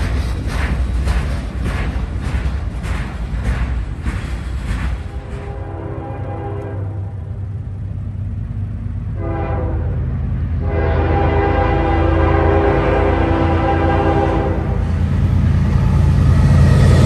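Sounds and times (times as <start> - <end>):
locomotive engine rumbling: 0.0 - 17.0
locomotive horn blasts: 5.1 - 7.3, 9.2 - 10.0, 10.6 - 14.9.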